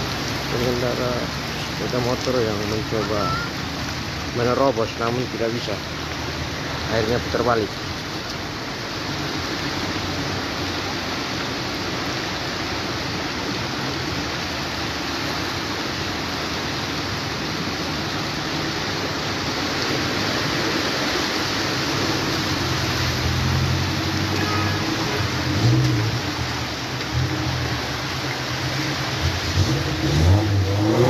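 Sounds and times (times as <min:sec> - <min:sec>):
floodwater and rain rushing: 0:00.0 - 0:31.0.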